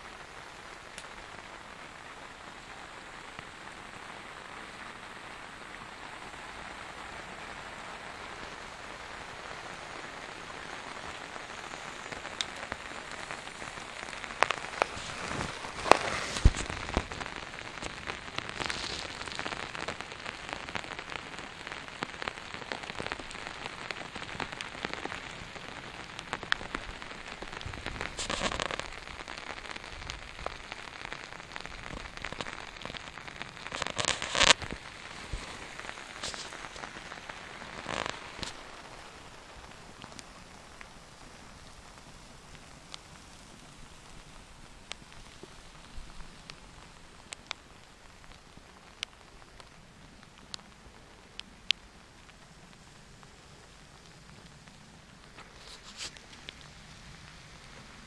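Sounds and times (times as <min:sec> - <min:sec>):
steady rain: 0:00.0 - 0:58.0
drops hitting a tarp: 0:14.8 - 0:17.1, 0:28.1 - 0:28.8, 0:33.8 - 0:36.9.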